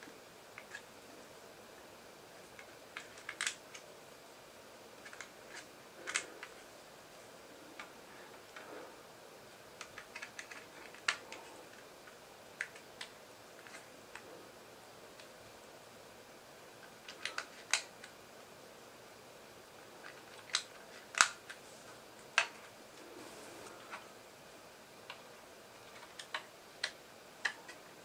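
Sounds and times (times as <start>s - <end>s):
plastic parts clicking together: 2.5s - 3.9s, 5.0s - 6.6s, 9.8s - 11.8s, 17.0s - 18.2s, 20.0s - 21.6s, 25.8s - 27.8s.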